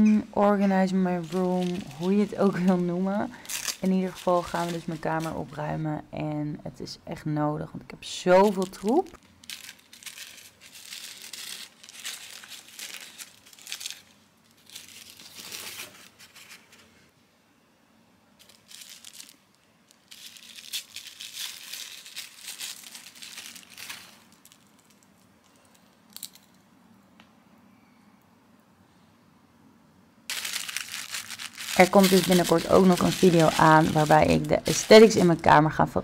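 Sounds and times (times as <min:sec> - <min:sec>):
packaging crinkling and tearing: 0:01.2 - 0:05.5, 0:08.4 - 0:16.7, 0:18.4 - 0:25.2, 0:30.3 - 0:35.6.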